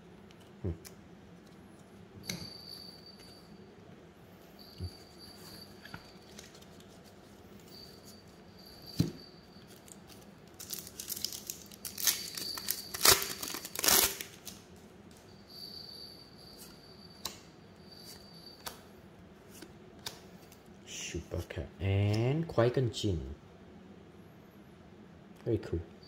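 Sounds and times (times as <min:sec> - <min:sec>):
wrapper tearing and crinkling: 0:10.5 - 0:14.6.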